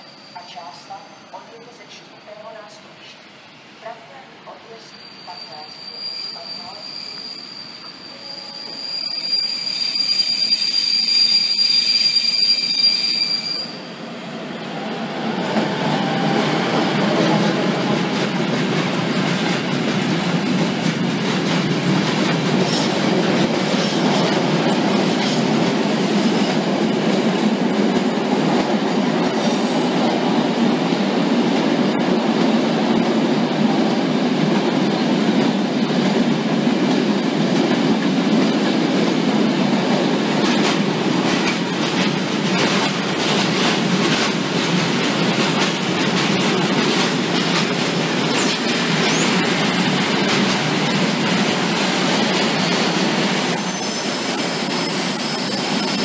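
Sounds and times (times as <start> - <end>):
train wheel squeal: 0.0 - 2.4, 4.7 - 13.9, 48.3 - 49.5, 52.2 - 56.0.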